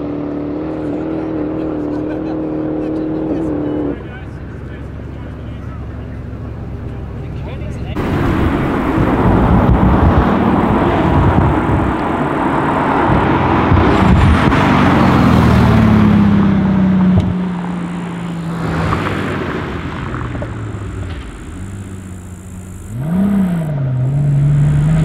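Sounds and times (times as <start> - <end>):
sports car accelerating past: 8.0 - 25.0.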